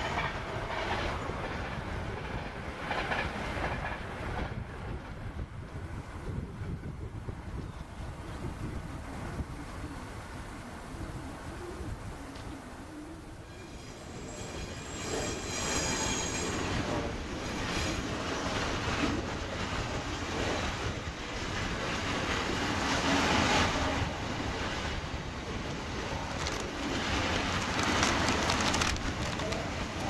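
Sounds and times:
train wagons rumbling: 0:00.0 - 0:09.7, 0:13.2 - 0:30.0
wheel squeal: 0:13.4 - 0:18.0.

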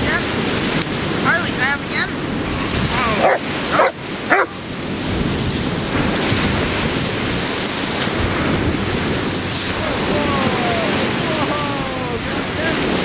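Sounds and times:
waves breaking on shore: 0:00.0 - 0:13.0
wind buffeting microphone: 0:00.0 - 0:13.0
dog barking: 0:03.1 - 0:04.6.

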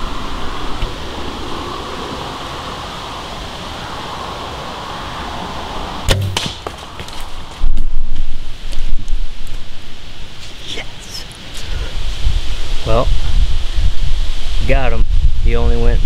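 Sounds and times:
outdoor hiss: 0:08.2 - 0:15.8.

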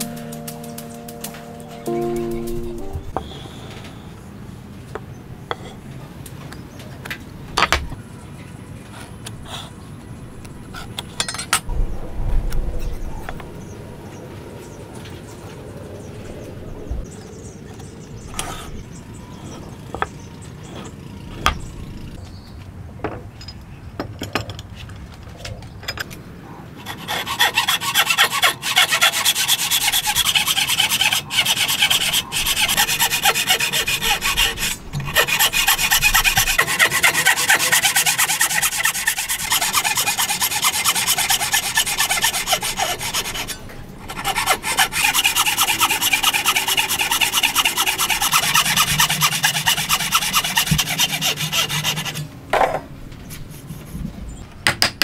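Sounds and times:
hand saw cutting wood: 0:26.8 - 0:52.2.

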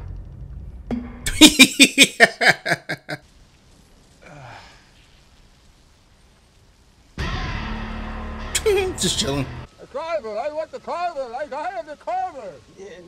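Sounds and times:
person laughing hard: 0:01.3 - 0:03.2
faint sigh: 0:04.2 - 0:05.0.

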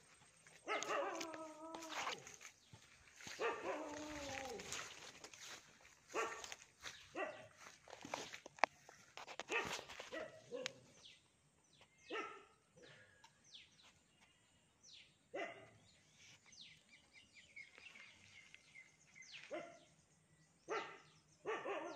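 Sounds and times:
birds chirping: 0:00.0 - 0:21.9
dog barking: 0:00.6 - 0:02.4, 0:03.2 - 0:04.9, 0:06.1 - 0:07.8, 0:09.5 - 0:11.0, 0:12.1 - 0:12.6, 0:15.3 - 0:15.8, 0:19.4 - 0:19.9, 0:20.7 - 0:21.9.

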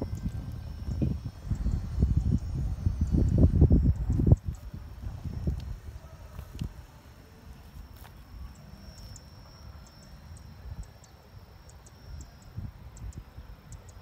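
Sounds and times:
wind rumbling on microphone: 0:00.0 - 0:07.0, 0:12.1 - 0:14.0
insects whining: 0:00.0 - 0:14.0
short high insect chirps: 0:07.5 - 0:14.0.

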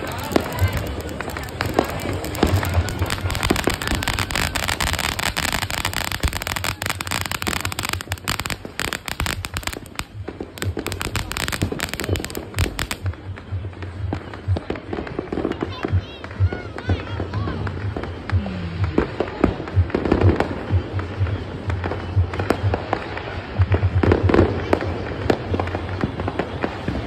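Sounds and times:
firework hissing and crackling: 0:00.0 - 0:18.3.

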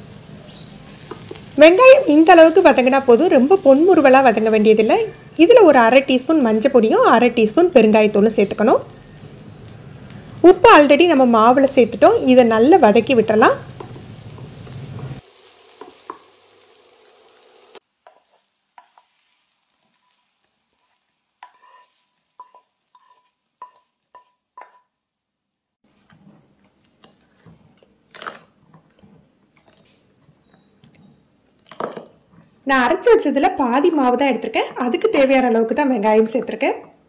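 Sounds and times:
spices sizzling in oil: 0:00.0 - 0:25.9, 0:32.7 - 0:36.7
spatula stirring in pan: 0:12.7 - 0:25.0, 0:25.8 - 0:31.2
ladle stirring thick batter: 0:25.9 - 0:31.3.

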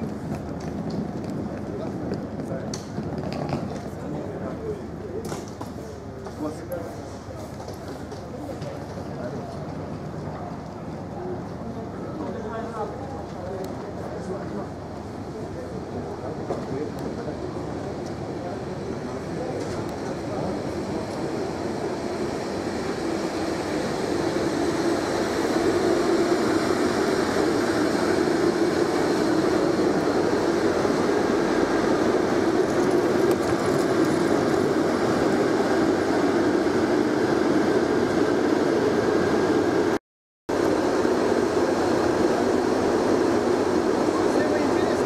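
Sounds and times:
electric train rumbling past: 0:13.9 - 0:45.0.

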